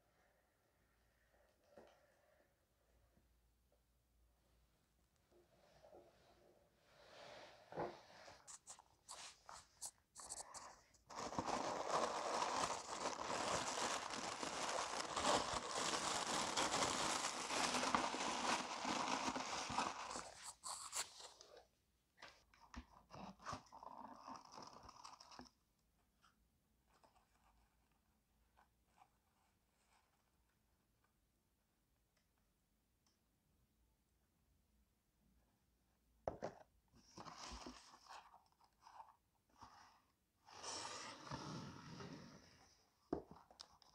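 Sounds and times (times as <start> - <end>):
tissue paper crinkling: 8.5 - 21.4.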